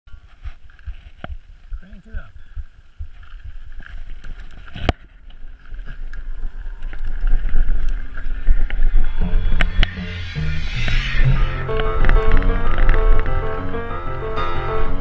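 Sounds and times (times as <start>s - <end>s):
bike rattling and clicking: 2.7s - 8.9s
music: 9.0s - 15.0s.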